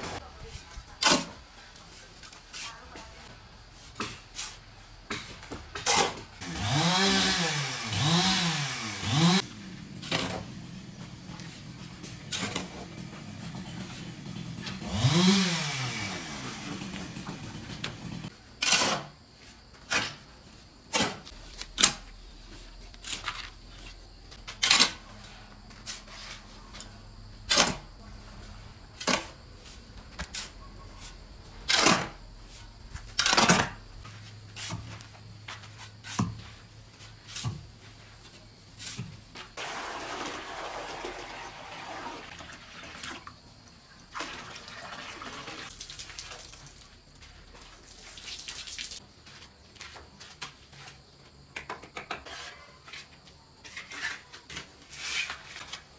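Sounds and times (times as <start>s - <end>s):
shovel scraping concrete floor: 3.8s - 20.2s, 20.9s - 27.8s, 29.0s - 37.6s, 52.0s - 55.9s.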